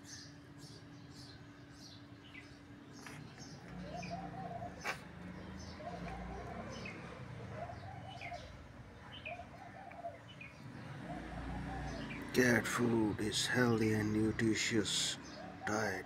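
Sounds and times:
lower bird call: 0.0 - 12.8
birds chirping: 0.0 - 16.0.

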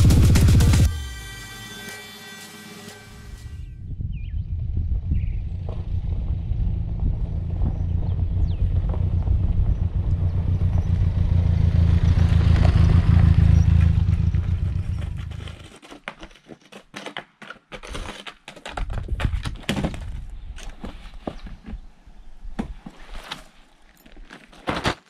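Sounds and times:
vehicle engine rumbling: 0.0 - 1.2, 3.2 - 15.8
crunches and scrapes: 14.6 - 22.0, 22.6 - 25.0.

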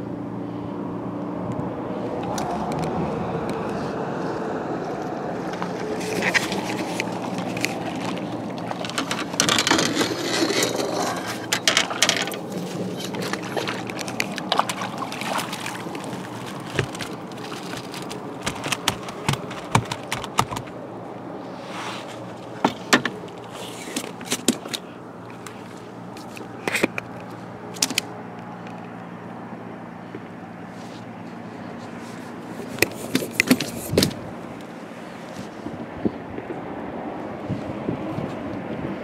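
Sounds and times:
knocks and scrapes of gear: 5.5 - 14.6, 16.5 - 20.7, 31.8 - 34.2.

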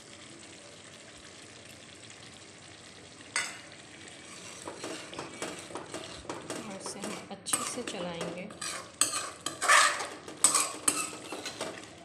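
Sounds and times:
gravy bubbling and sizzling in a pan: 0.0 - 12.0
spoon scraping a pan: 3.4 - 12.0.

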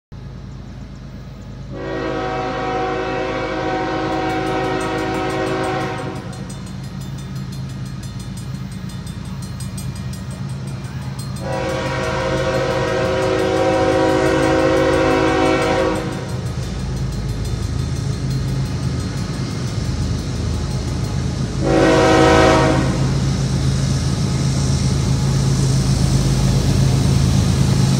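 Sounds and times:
train horn blasts: 1.7 - 7.0, 11.3 - 16.8, 21.4 - 23.4.

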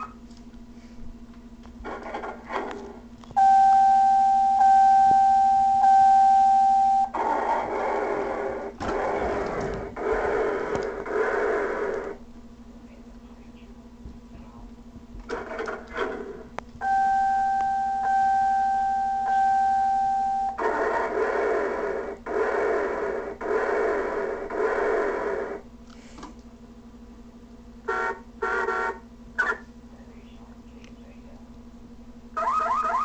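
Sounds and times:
toy electronic high beep: 3.4 - 7.2, 16.8 - 20.6.

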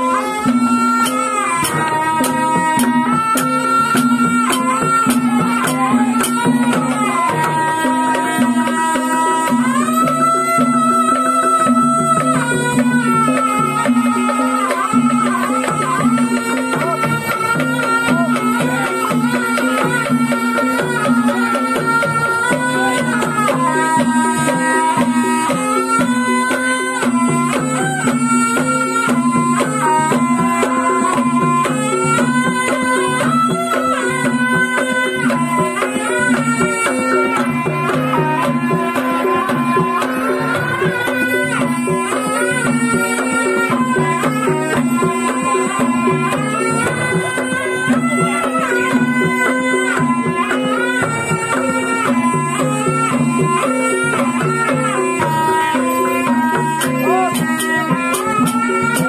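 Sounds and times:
drum strokes: 0.0 - 59.0
gamelan pitched beats: 0.0 - 59.0
shawm wavering melody: 0.0 - 59.0.

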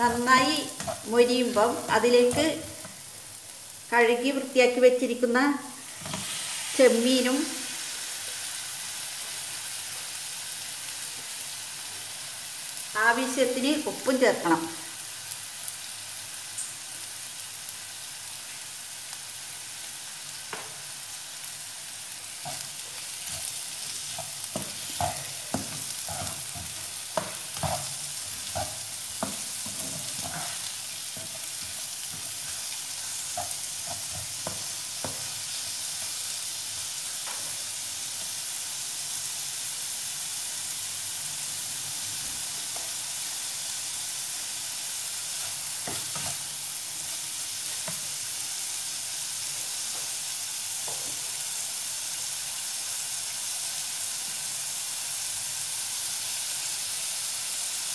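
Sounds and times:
prawns sizzling in a pan: 0.0 - 57.9
spatula scraping a pan: 22.4 - 35.8.

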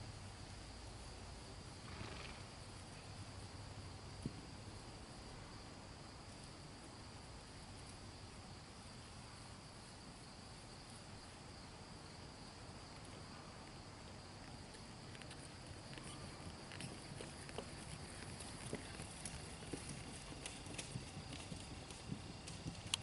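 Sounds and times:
insects droning: 0.0 - 23.0
horse hoofbeats on grass: 14.6 - 23.0.

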